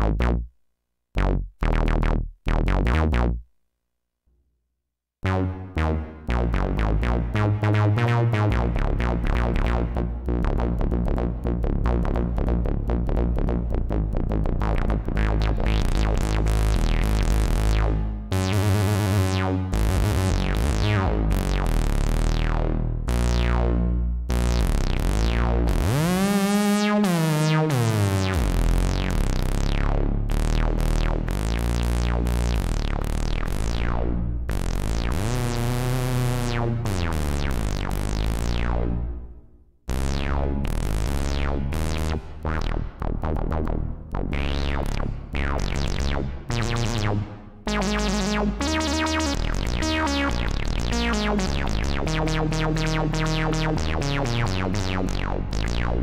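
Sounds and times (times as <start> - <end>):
synth filter sweeps: 5.2 - 56.0
synth notes and chords: 5.2 - 56.0.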